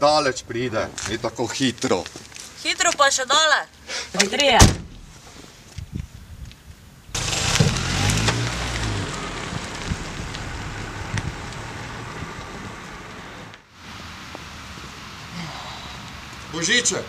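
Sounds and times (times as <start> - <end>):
car engine and tyre noise: 4.9 - 15.3.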